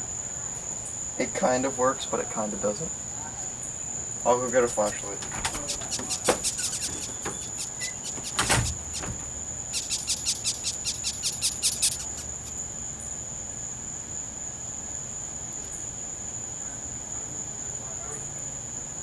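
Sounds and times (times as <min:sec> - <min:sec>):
insects trilling: 0:00.0 - 0:19.0
dull thump: 0:04.6 - 0:10.4
rapid high clicks: 0:04.6 - 0:12.5.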